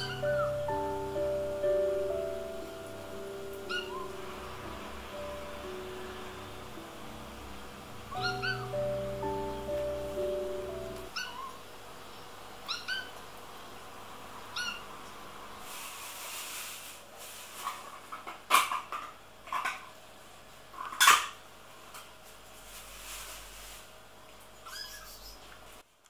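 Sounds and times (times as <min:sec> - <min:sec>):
kitten meowing: 0:00.0 - 0:00.6, 0:03.6 - 0:04.2, 0:08.1 - 0:08.8, 0:24.6 - 0:25.3
soft background music: 0:00.0 - 0:11.2.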